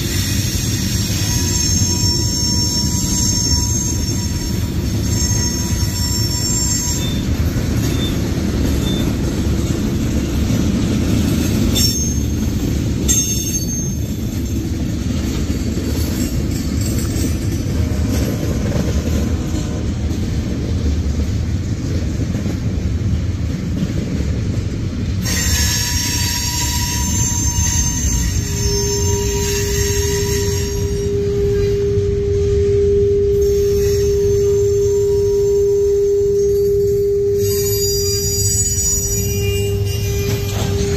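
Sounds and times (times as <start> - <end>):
wheel squeal: 0.0 - 9.3, 11.6 - 14.8, 25.2 - 40.9
train wheels rumbling on rail: 0.0 - 40.9.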